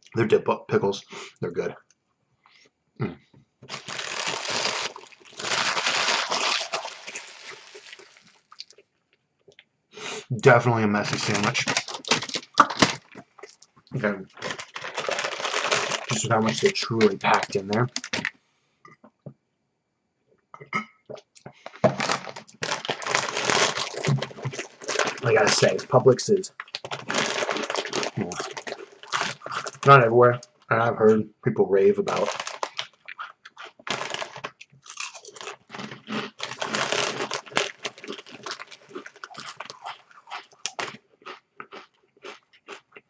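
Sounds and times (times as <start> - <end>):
plastic bottle crinkling: 3.6 - 8.8, 11.0 - 18.3, 21.5 - 29.9, 32.1 - 33.0, 33.8 - 39.9
person crunching potato chips: 3.7 - 8.8, 11.0 - 18.3, 21.6 - 30.0, 32.1 - 43.0.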